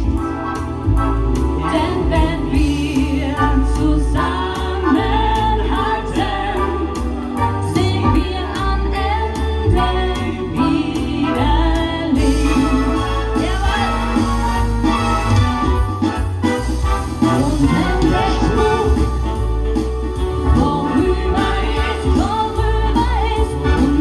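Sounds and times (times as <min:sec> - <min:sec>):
woman singing into microphone: 0:01.7 - 0:14.2, 0:20.5 - 0:24.0.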